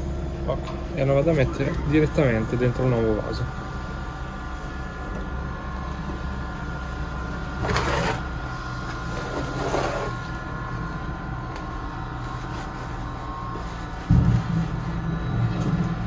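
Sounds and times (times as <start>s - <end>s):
steady mechanical hum: 0.0s - 16.0s
pot scraping in substrate: 7.6s - 8.3s, 9.1s - 10.3s.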